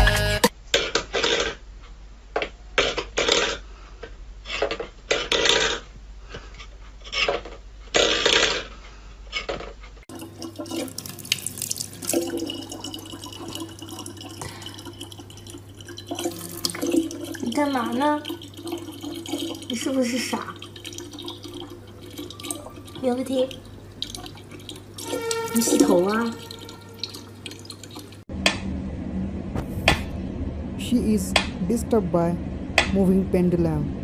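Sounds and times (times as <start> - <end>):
steady low hum: 25.7 - 34.0.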